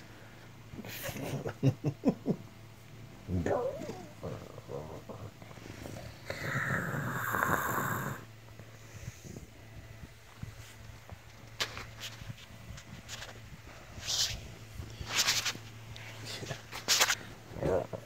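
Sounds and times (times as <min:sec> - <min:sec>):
cat purring: 0:03.3 - 0:09.6
scratchy rustles: 0:10.2 - 0:17.4.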